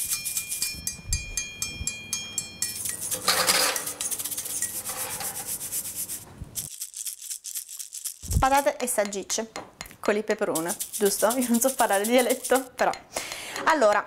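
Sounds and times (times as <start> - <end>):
music with rapid shaker rhythm: 0.0 - 2.0, 2.6 - 14.0
metal tray scraping on wire rack: 2.9 - 5.8.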